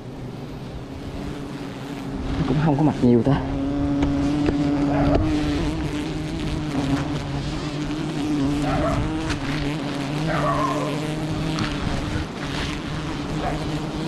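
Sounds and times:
swarm of bees buzzing: 0:00.0 - 0:14.0
single bees whizzing past: 0:03.6 - 0:14.0.

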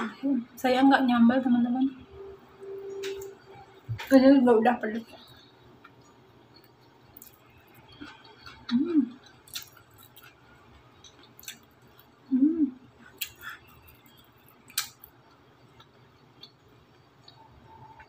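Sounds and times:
person chewing food: 0:05.2 - 0:12.3, 0:12.9 - 0:18.0
closed-mouth hum: 0:12.2 - 0:13.9
wet mouth clicks and smacks: 0:14.7 - 0:15.1.

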